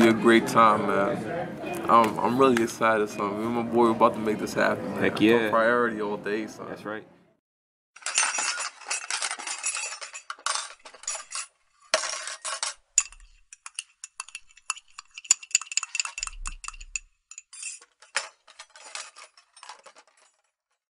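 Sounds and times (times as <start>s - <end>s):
small hard objects clattering: 8.0s - 20.5s.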